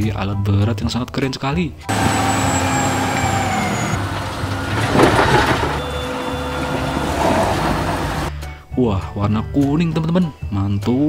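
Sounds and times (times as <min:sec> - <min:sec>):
diesel engine running under load: 0:01.9 - 0:08.3
rush of falling soil: 0:01.9 - 0:08.3.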